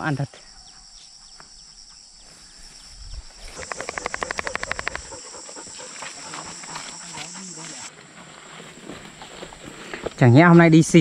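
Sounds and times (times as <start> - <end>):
animal rapid rattling call: 3.6 - 7.9.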